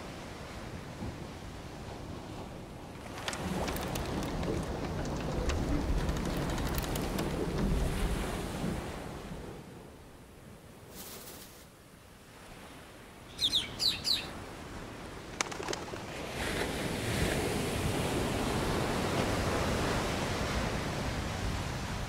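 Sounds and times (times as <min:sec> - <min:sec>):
surf washing on shore: 0:00.0 - 0:11.6, 0:14.3 - 0:22.0
bird chirps: 0:13.3 - 0:14.4.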